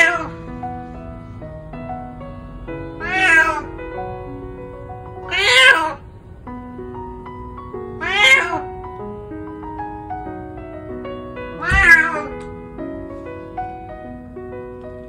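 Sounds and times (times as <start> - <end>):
cat meowing loudly: 0.0 - 0.4, 3.0 - 3.7, 5.2 - 6.0, 8.0 - 8.7, 11.6 - 12.4.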